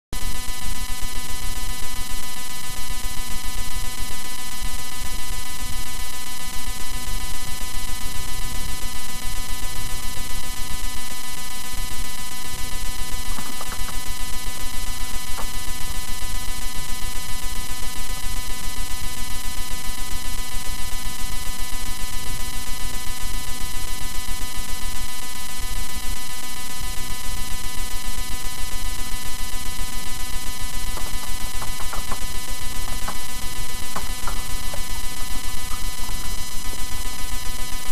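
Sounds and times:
loud electrical buzz with hiss: 0:00.2 - 0:37.9.

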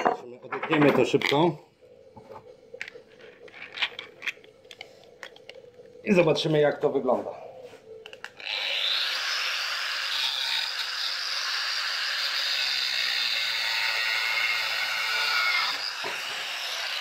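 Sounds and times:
angle grinder cutting: 0:08.2 - 0:17.0.

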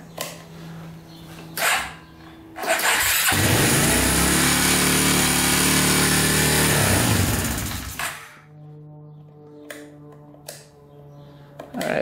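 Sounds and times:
engine cranking on electric starter: 0:01.6 - 0:02.0, 0:02.6 - 0:08.3.

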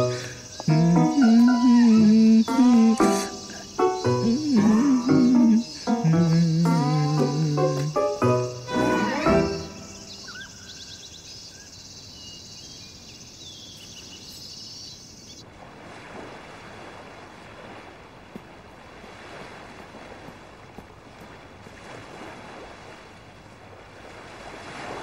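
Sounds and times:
high steady hiss: 0:00.0 - 0:15.4
waves washing onto beach: 0:15.4 - 0:25.0.

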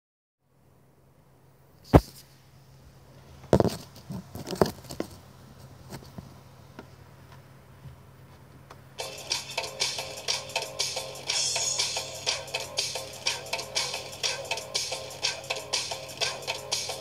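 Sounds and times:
phone handling knocks and rubs: 0:03.5 - 0:05.2.

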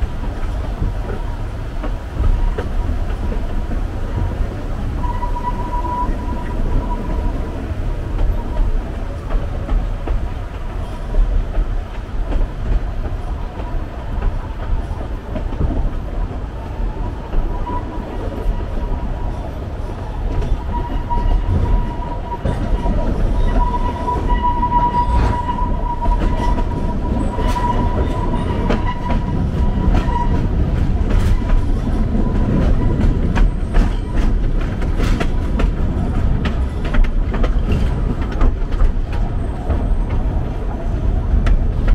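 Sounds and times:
train wheels rumbling on rails: 0:00.0 - 0:41.9
wheels clicking on rail joints: 0:00.0 - 0:41.9
high wheel squeal: 0:05.0 - 0:07.5, 0:17.5 - 0:30.6.

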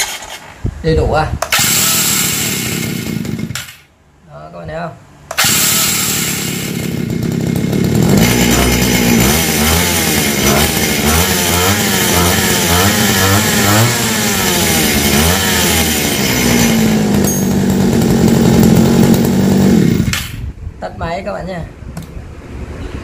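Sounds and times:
two-stroke engine revving and idling: 0:01.4 - 0:03.8, 0:05.3 - 0:20.4.

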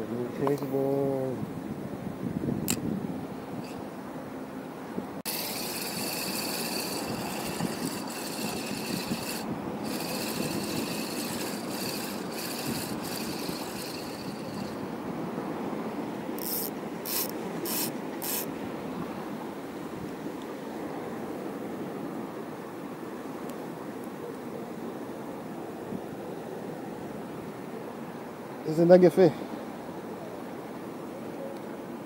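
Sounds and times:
fishing reel whirring: 0:05.3 - 0:15.0, 0:16.4 - 0:18.5
short bursts of hiss: 0:16.4 - 0:18.5.

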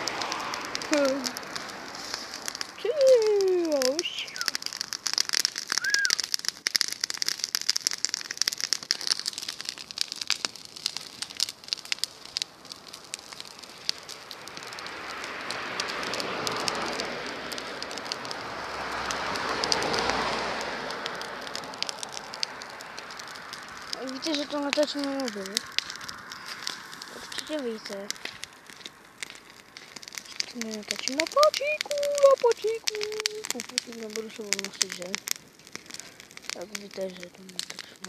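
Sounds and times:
bonfire crackling and popping: 0:00.0 - 0:38.0
broad rushing noise: 0:13.1 - 0:33.5.

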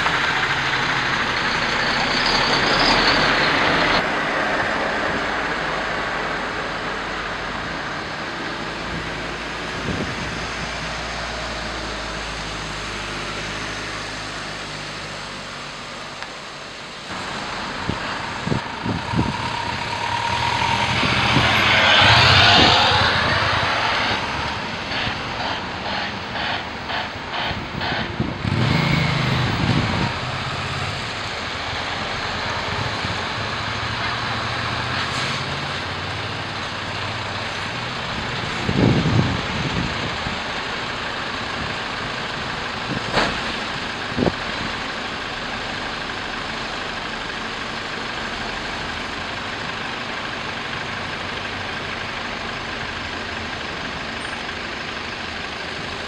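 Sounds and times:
diesel truck engines: 0:00.0 - 0:56.0
tyre and road noise: 0:00.0 - 0:56.0.

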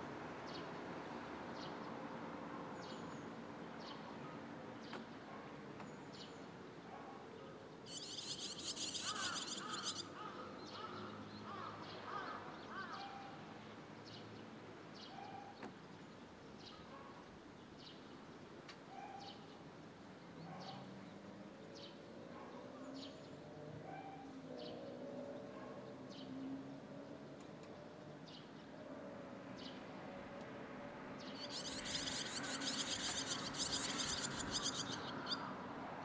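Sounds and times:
high chirping bird calls: 0:07.9 - 0:10.1, 0:31.3 - 0:35.5.

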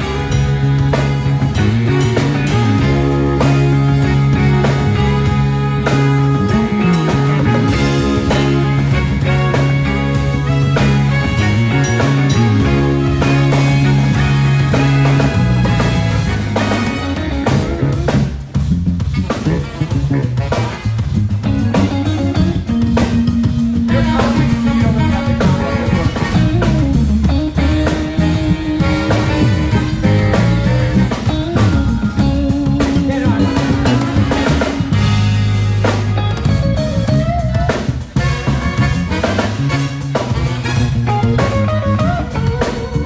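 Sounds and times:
bass guitar: 0:00.0 - 0:43.0
drum kit hits: 0:00.0 - 0:43.0
electric guitar: 0:00.0 - 0:43.0.

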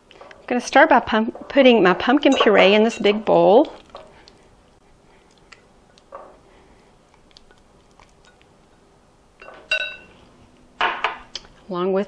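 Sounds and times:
ringing glass clink: 0:09.4 - 0:10.2.

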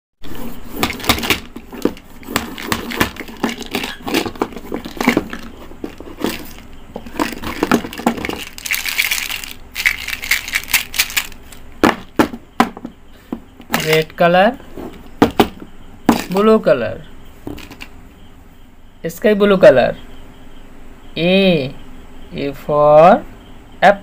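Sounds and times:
rustling: 0:00.2 - 0:12.4
plastic bottles clicking and knocking: 0:00.2 - 0:14.2, 0:15.0 - 0:16.4, 0:17.5 - 0:17.9.

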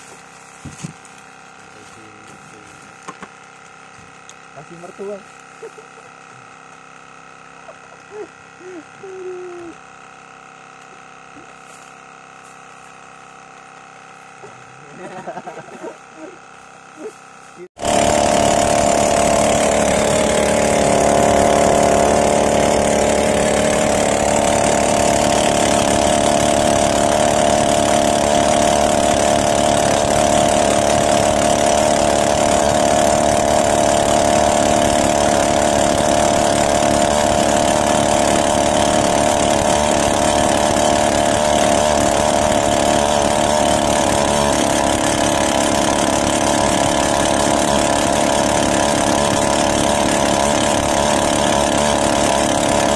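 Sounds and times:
boat engine running: 0:13.4 - 0:52.9.

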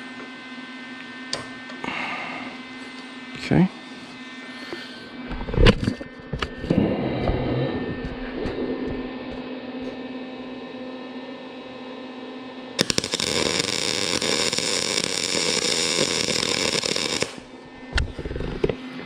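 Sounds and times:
steady low hum: 0:00.0 - 0:19.0
electric welding arc crackling: 0:12.8 - 0:18.5.

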